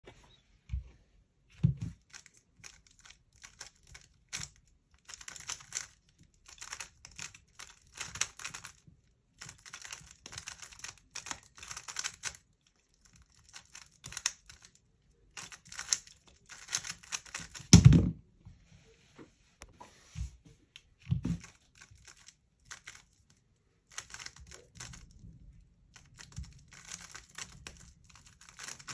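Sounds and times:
plastic puzzle cube clicking: 1.8 - 8.8, 9.4 - 14.8, 15.4 - 17.8, 21.4 - 23.2, 23.9 - 25.1, 25.9 - 28.9.

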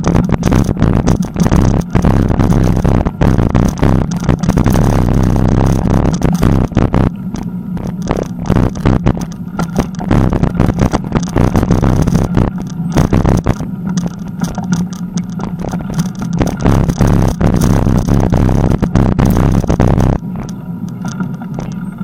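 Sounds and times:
low rumble of tyres on dirt: 0.0 - 22.0
bicycle frame rattling: 7.9 - 20.2.

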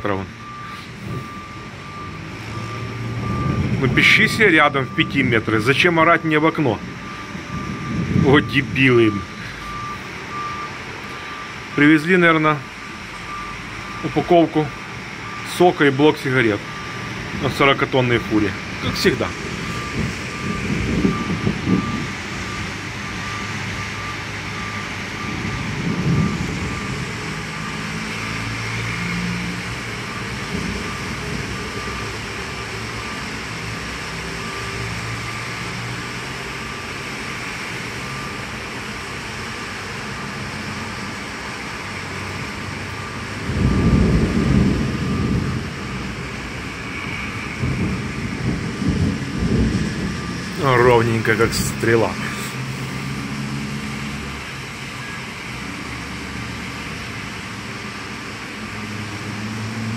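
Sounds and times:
lorry reversing alarm beeping: 0.0 - 57.7
hiss of wet traffic: 0.0 - 59.9.

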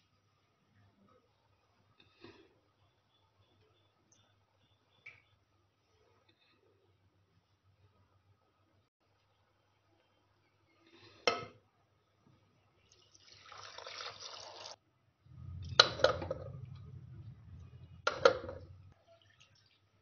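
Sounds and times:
liquid pouring into a pot: 12.8 - 14.8, 18.1 - 20.0
handling rumble: 15.3 - 18.9.

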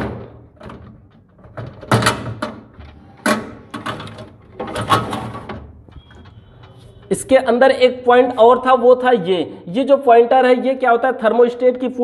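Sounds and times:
hard plastic rattling and scraping: 0.0 - 7.1.

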